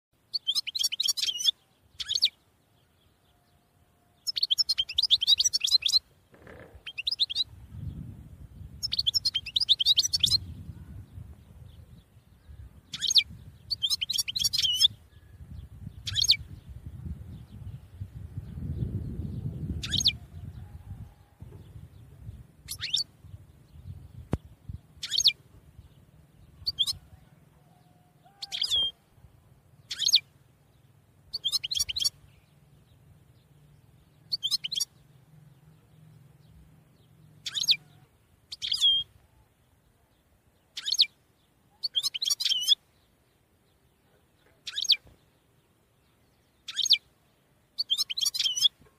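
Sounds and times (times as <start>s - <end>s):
songbird chirping: 0.2s - 48.9s.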